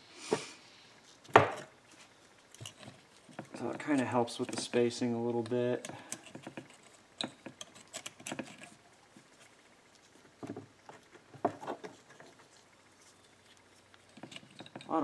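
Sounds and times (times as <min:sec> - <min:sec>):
metallic clicks and scrapes: 0:05.4 - 0:09.5, 0:13.2 - 0:15.0.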